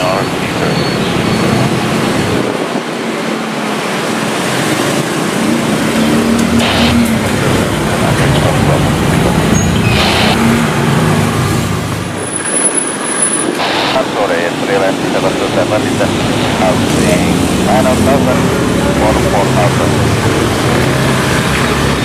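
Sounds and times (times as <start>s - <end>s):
road traffic roar: 0.0s - 22.0s.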